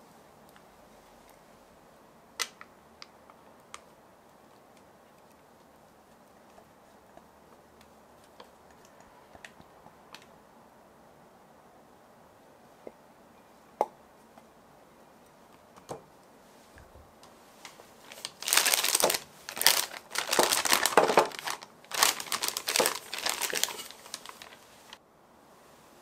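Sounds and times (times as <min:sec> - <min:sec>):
crinkly wrapping handled: 0:17.6 - 0:25.0.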